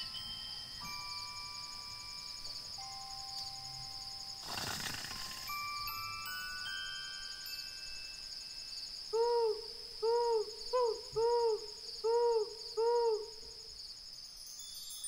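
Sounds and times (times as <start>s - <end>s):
crickets chirping: 0.0s - 15.0s
owl hooting: 9.1s - 13.5s.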